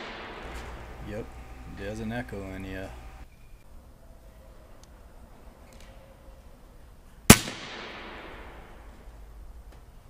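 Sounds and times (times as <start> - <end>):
faint steady tone: 0.0 - 7.2
faint low hum: 0.0 - 7.3.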